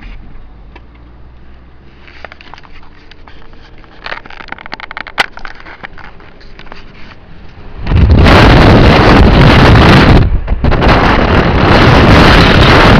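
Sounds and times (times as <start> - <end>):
car road rumble: 0.0 - 12.9
crackling clicks: 2.2 - 7.6
wind buffeting microphone: 2.3 - 12.9.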